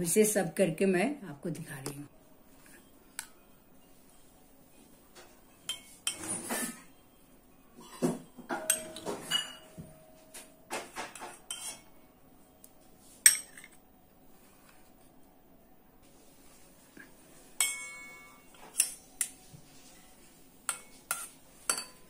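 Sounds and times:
steel spoon clinking against bowl: 5.6s - 6.3s, 7.8s - 9.8s, 13.3s - 13.8s, 17.6s - 19.4s, 20.7s - 22.0s
bowl ringing: 6.8s - 10.4s, 17.6s - 18.6s.

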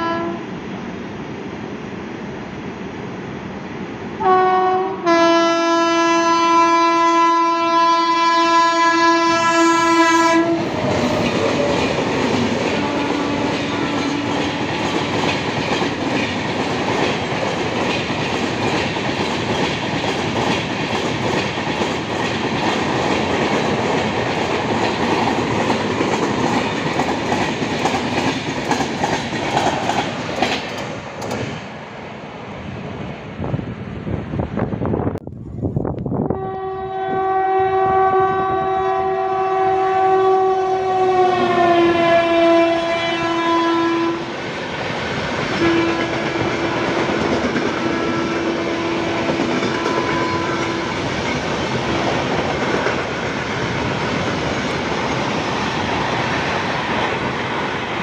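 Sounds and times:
train horn blasts: 0.0s - 0.5s, 4.2s - 10.9s, 12.6s - 14.7s, 36.3s - 44.3s, 45.6s - 51.1s
train wheels rushing on rail: 0.0s - 58.0s
clickety-clack of passing coaches: 10.2s - 31.6s, 44.7s - 58.0s.

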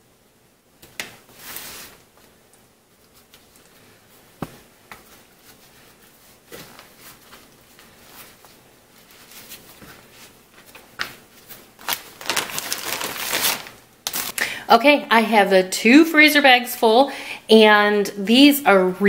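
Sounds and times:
tortilla rustling and scraping: 1.0s - 14.4s.

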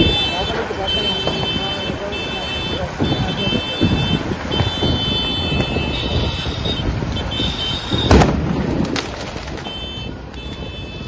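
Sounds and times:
crowd and vehicle rumble: 0.0s - 11.0s
firecracker bang: 7.8s - 9.8s
firecracker cracks: 7.8s - 10.7s.

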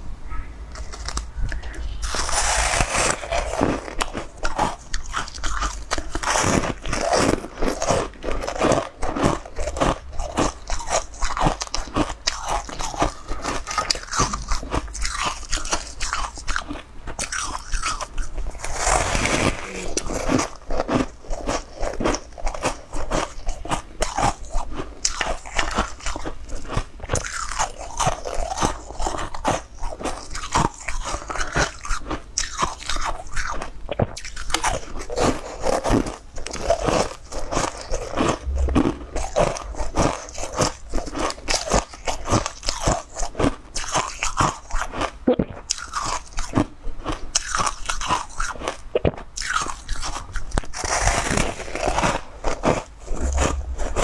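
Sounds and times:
crunchy food being chewed: 0.7s - 54.0s.

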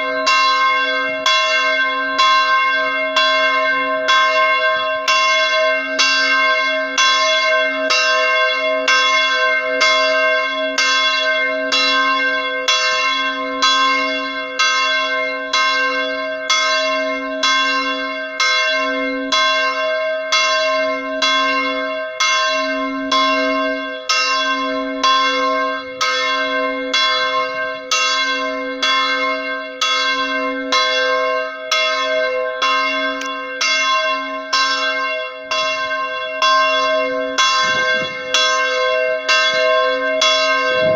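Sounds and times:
church bells pealing: 0.0s - 40.9s.

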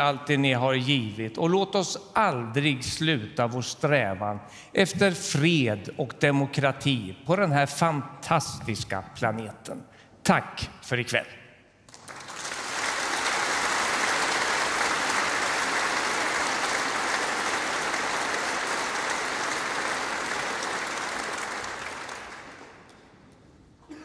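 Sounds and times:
audience applauding: 11.9s - 23.2s.

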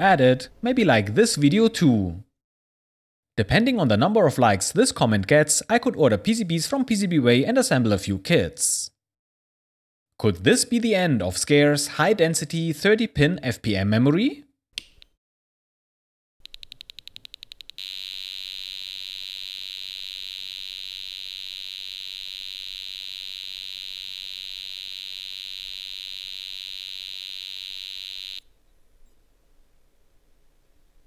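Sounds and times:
computer buzzing: 17.3s - 28.5s.

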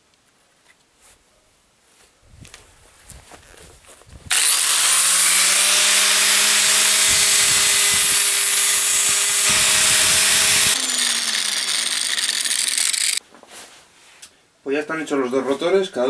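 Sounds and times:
angle grinder whining: 4.3s - 13.2s.

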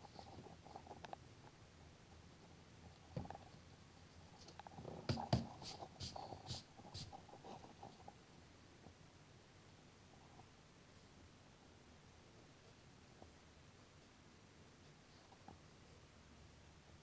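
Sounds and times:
eraser and pencil scratching paper: 5.1s - 7.7s
hand brushing paper: 5.1s - 7.7s.

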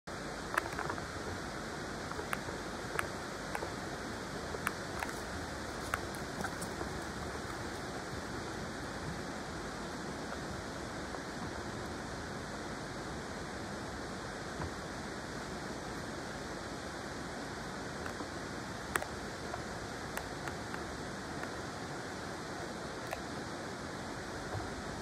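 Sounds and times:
river water rushing: 0.1s - 11.4s.

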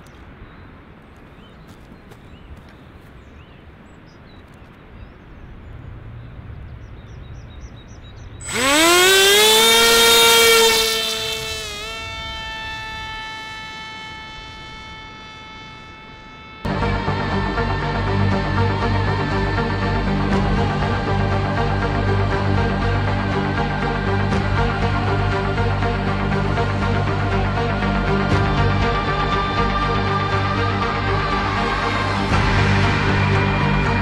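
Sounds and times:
electric motor propeller whine: 8.4s - 34.0s.

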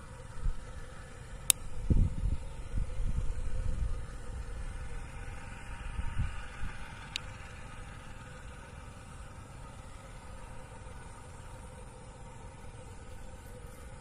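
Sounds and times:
distant jet engines humming: 0.0s - 14.0s
wind rumbling on microphone: 1.6s - 7.0s.

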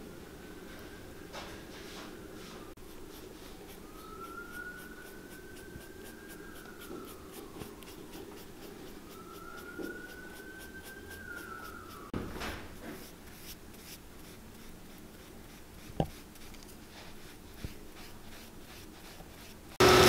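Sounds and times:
siren wailing: 2.4s - 12.2s
brush scraping leather: 2.8s - 12.1s, 12.7s - 19.8s.

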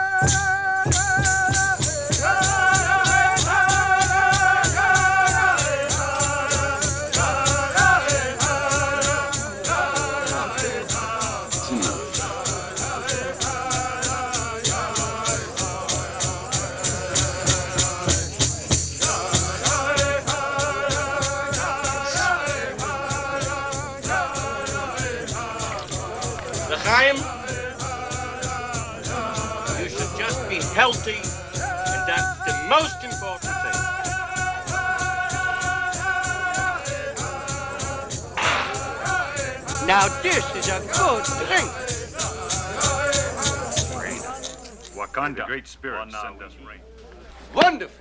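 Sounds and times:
high voices chanting: 0.0s - 45.4s
hand drum beating: 38.3s - 42.0s.

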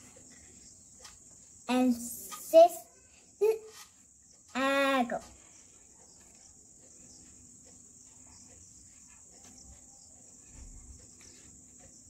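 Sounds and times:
marker scratching on whiteboard: 0.0s - 2.8s, 3.4s - 12.0s.

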